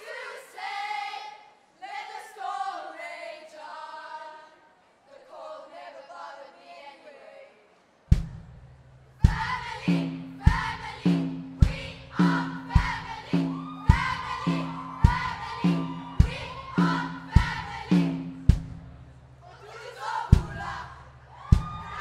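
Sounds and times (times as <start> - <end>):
group of voices singing: 0.0 - 7.6, 9.2 - 18.5, 19.4 - 22.0
heavy drum beat: 8.1 - 19.2, 20.4 - 20.8, 21.5 - 22.0.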